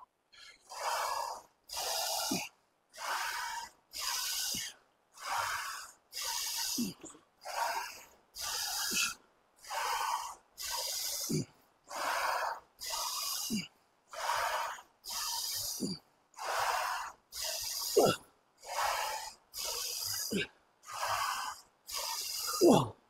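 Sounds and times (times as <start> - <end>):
man breathing hard: 0.3 - 23.0
man grunting: 17.9 - 18.2, 22.6 - 22.9.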